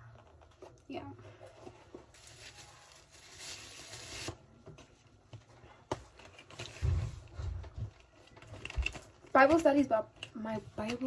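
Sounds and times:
bubble wrap crinkling: 0.0s - 4.5s.

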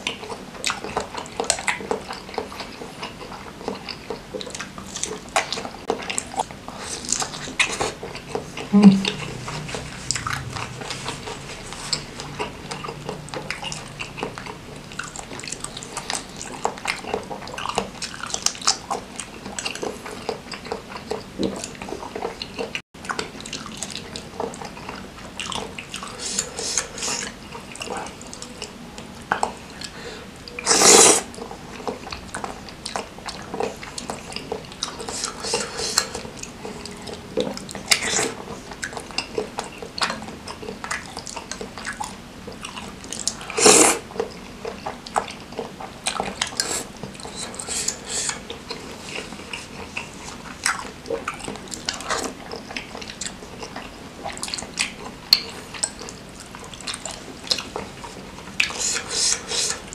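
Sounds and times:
wet chewing: 0.0s - 59.9s
noodle slurping: 29.8s - 31.5s, 33.6s - 36.8s, 43.3s - 44.1s, 46.3s - 50.8s, 56.9s - 59.9s.

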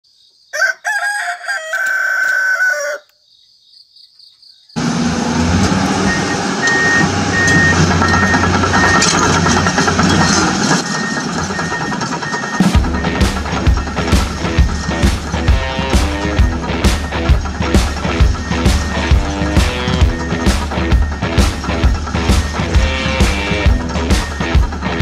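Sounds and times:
rooster crowing: 0.5s - 3.2s
high beep: 6.1s - 9.1s.

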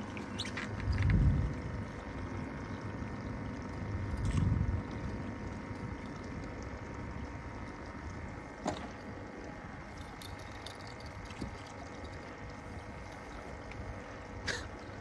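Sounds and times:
faint steady hum: 0.0s - 15.0s
waves lapping against metal hull: 0.0s - 15.0s
wind on microphone: 0.8s - 1.8s.

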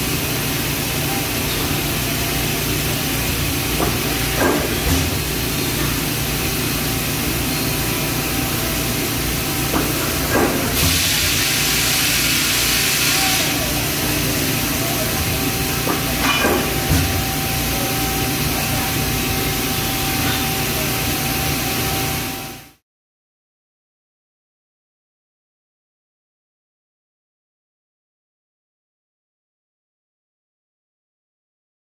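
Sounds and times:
hiss: 9.8s - 14.6s
metal clank: 15.9s - 17.2s.

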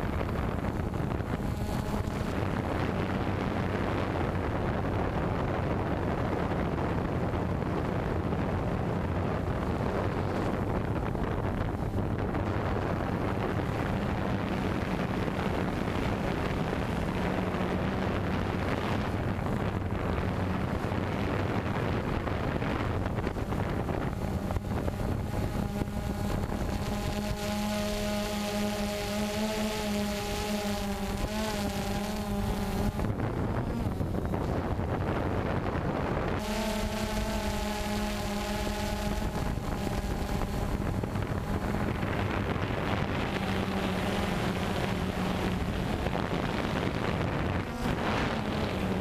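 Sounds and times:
drone propellers buzzing: 0.0s - 49.0s
high multi-tone whine: 0.0s - 49.0s
wind noise on microphone: 0.0s - 49.0s.

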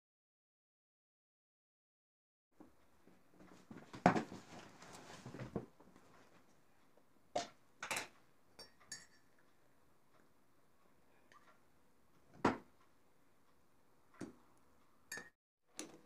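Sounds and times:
rustling of objects: 3.0s - 6.7s
glass jar clicking and clinking: 7.8s - 9.4s, 15.1s - 15.3s.

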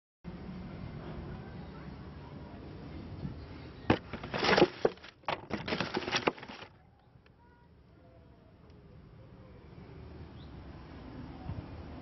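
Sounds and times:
rustling and scraping: 3.9s - 6.8s.

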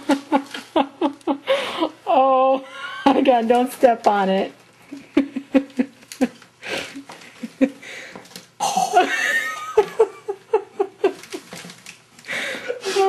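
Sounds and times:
person laughing: 0.0s - 3.3s, 4.9s - 8.0s, 8.6s - 11.6s.

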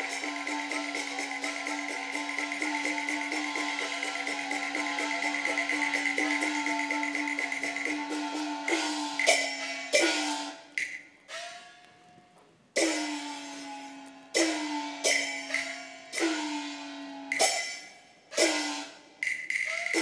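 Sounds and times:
loud ringing percussion strikes: 0.0s - 10.4s, 12.8s - 13.6s, 14.4s - 20.0s
wood-block clicks: 10.7s - 11.1s, 19.2s - 20.0s.

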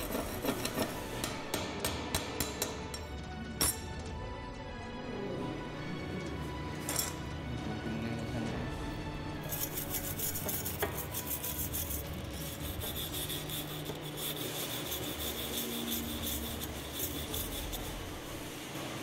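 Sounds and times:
wire brush rasping on steel: 0.0s - 1.6s, 9.4s - 18.6s.

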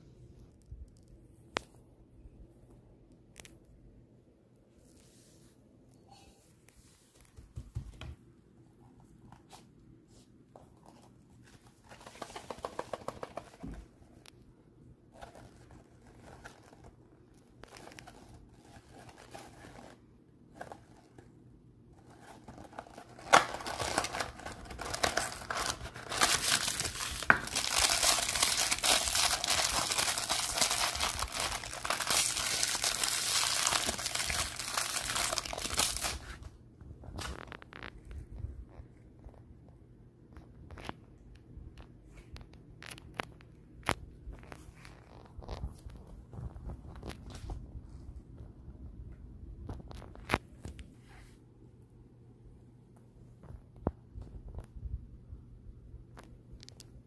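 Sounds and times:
hands handling cardboard box: 10.6s - 14.2s, 22.0s - 36.4s
packaging crinkling and tearing: 15.2s - 21.1s, 22.0s - 36.5s, 37.2s - 38.2s.

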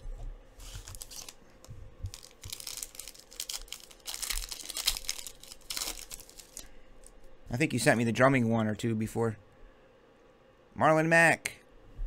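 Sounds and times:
foil wrapper crinkling: 0.6s - 1.4s, 2.0s - 7.1s
foil wrapper tearing open: 0.6s - 1.4s, 2.1s - 6.7s.

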